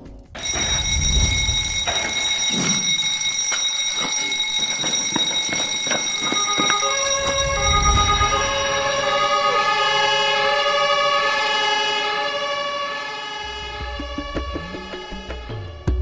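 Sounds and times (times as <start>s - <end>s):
lower tones: 0.4s - 3.1s, 6.5s - 16.0s
smoke alarm high-pitched tone: 0.4s - 14.0s.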